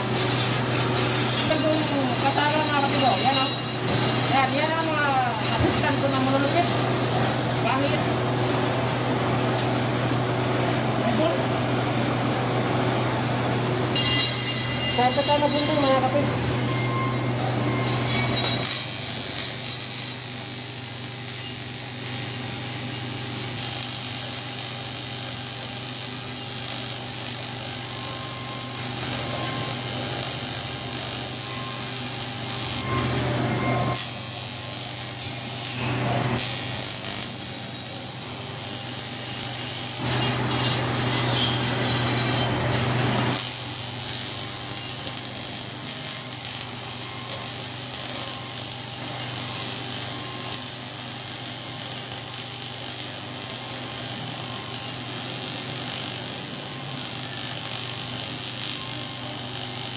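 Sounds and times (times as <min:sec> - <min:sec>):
welding arc buzzing: 0:00.0 - 0:59.9.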